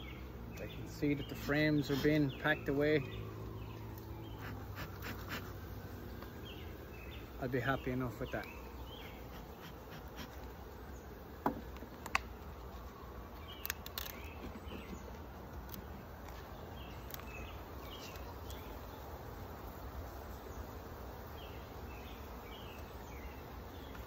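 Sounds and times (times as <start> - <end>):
honeybees buzzing: 0.0 - 24.0
wooden hive parts clicking: 11.4 - 18.6.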